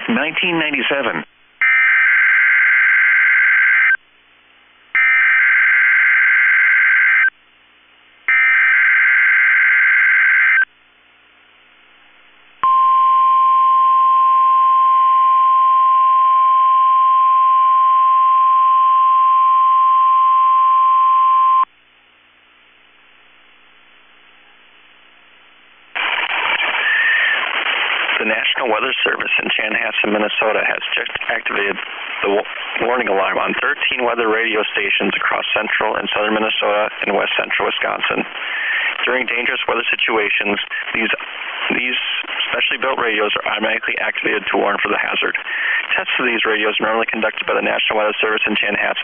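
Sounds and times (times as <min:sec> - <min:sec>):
steady warning alarm tone: 0:05.0 - 0:07.3, 0:08.3 - 0:10.7.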